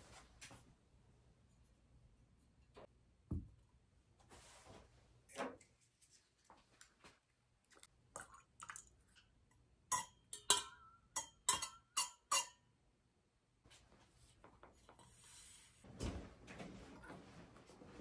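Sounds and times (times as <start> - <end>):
spoon clinking in metal mug: 9.9 - 12.6.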